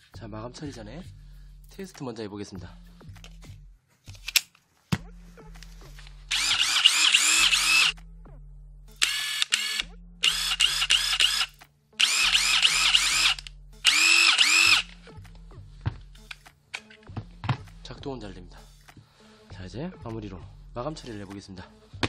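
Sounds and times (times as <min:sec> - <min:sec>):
impact driver running: 0:06.3 - 0:07.9, 0:09.0 - 0:15.0.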